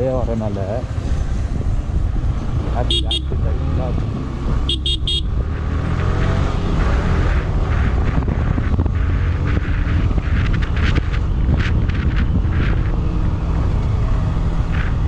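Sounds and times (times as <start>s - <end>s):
motorcycle engine rumble: 0.0s - 15.0s
wind on microphone: 0.8s - 15.0s
horn beeps: 2.8s - 3.3s, 4.6s - 5.4s.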